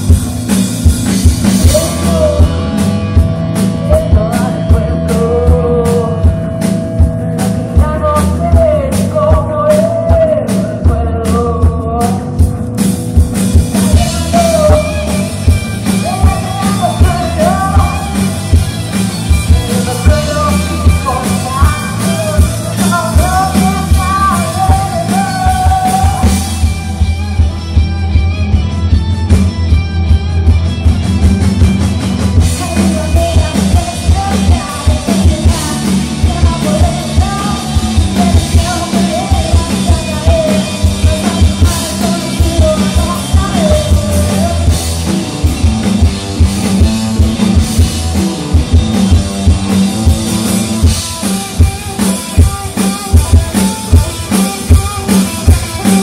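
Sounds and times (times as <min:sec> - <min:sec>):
drums: 0:00.0 - 0:56.0
live rock band playing: 0:00.0 - 0:56.0
person singing: 0:01.2 - 0:12.7, 0:13.6 - 0:27.6, 0:32.4 - 0:45.2, 0:50.3 - 0:56.0.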